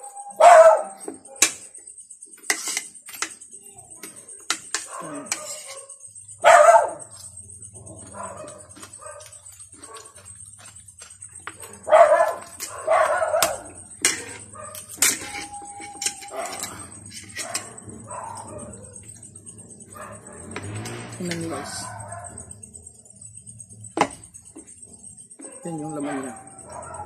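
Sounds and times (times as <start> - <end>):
dog barking: 0.3 - 1.5, 4.8 - 10.3, 11.5 - 22.6, 25.0 - 27.0.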